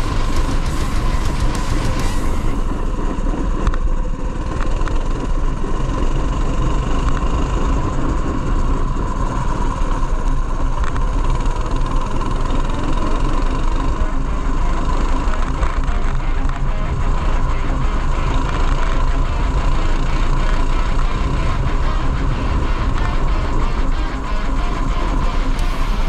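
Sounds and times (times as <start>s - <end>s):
go-kart engine running: 0.0s - 26.0s.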